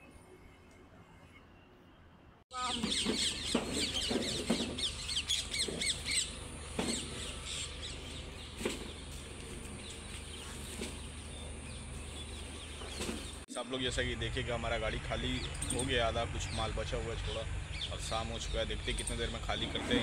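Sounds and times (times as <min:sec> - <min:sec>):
small birds chirping: 0:02.5 - 0:13.5, 0:15.1 - 0:20.0.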